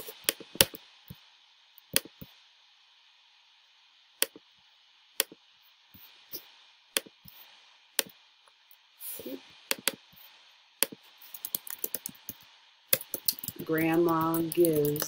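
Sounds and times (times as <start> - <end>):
faint steady hiss: 0.0 - 15.0
sharp computer mouse clicks: 10.8 - 13.6.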